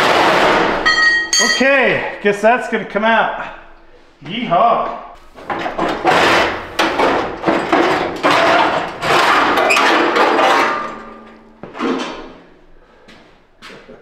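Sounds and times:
sheet metal clanging and scraping: 0.0 - 2.0, 5.2 - 12.6.

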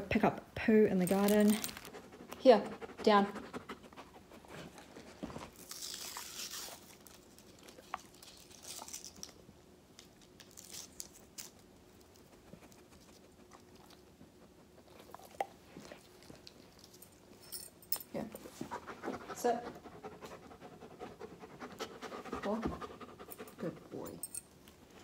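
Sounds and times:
foil blister pack crinkling: 1.0 - 2.0, 5.5 - 9.4.

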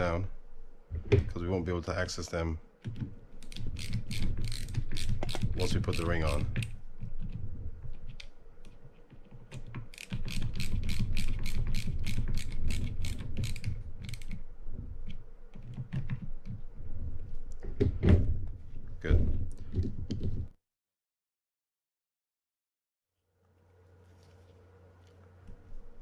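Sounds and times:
ratcheting screwdriver clicking: 3.4 - 6.7, 9.9 - 14.4.

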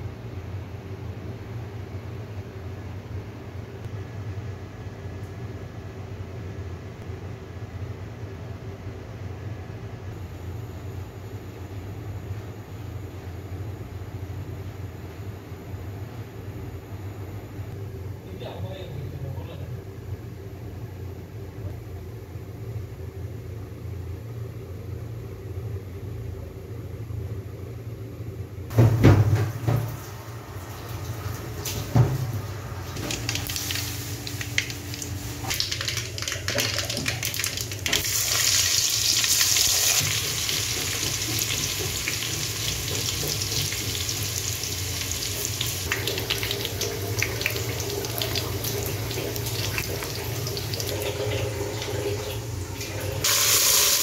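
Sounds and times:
steady low hum: 0.0 - 36.1
hot oil sizzling and crackling: 29.9 - 51.6, 53.2 - 54.0.

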